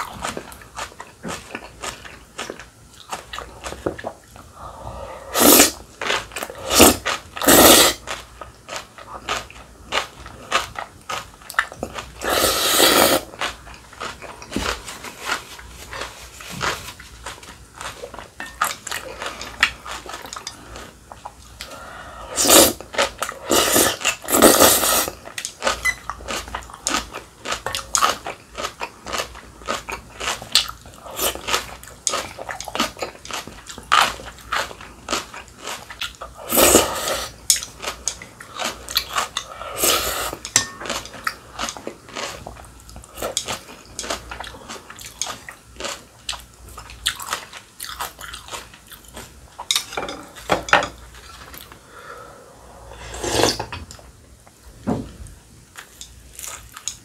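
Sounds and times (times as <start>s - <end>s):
slurping noodles: 5.2s - 5.8s, 6.5s - 8.0s, 12.2s - 13.3s, 23.4s - 25.1s.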